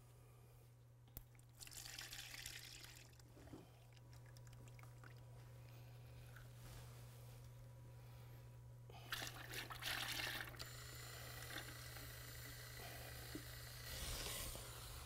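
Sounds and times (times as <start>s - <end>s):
liquid pouring into plastic bucket: 1.4s - 5.3s, 9.1s - 10.7s.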